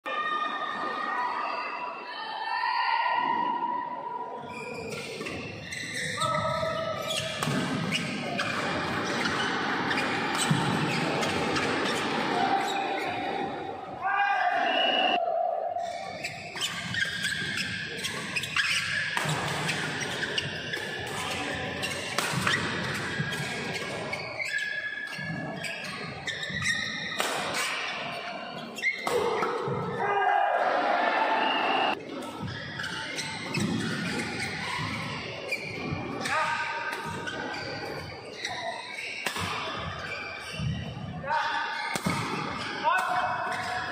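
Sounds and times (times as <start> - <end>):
shoe squeaks on court floor: 4.5 - 13.3, 15.8 - 29.1, 32.0 - 40.9.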